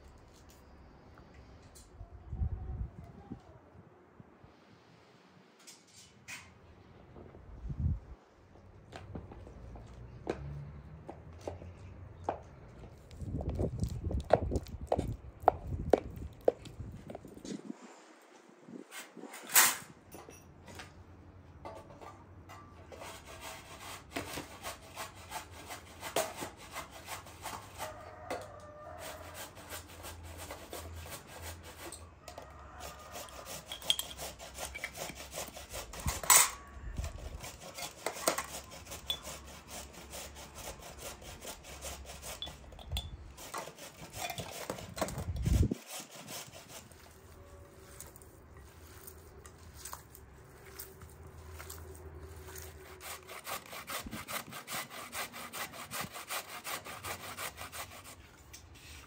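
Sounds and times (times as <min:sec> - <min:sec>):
meat being worked by hand: 0:22.8 - 0:59.0.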